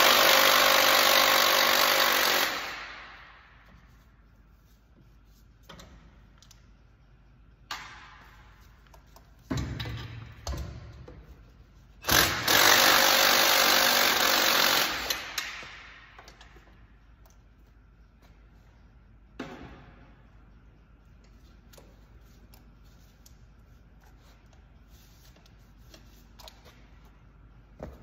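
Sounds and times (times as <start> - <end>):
handheld power tool running: 0.0 - 2.9, 12.0 - 15.4.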